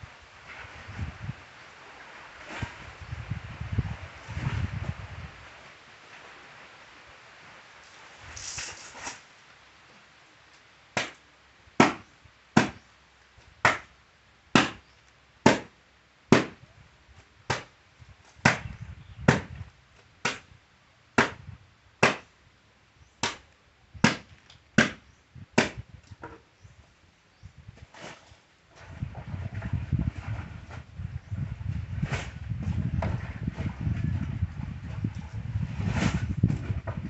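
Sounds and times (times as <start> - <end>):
wooden paddle slapping wet clothes: 7.9 - 9.3, 11.0 - 11.2, 11.8 - 12.9, 13.5 - 13.9, 14.5 - 16.6, 17.4 - 20.5, 21.2 - 22.3, 23.2 - 26.2.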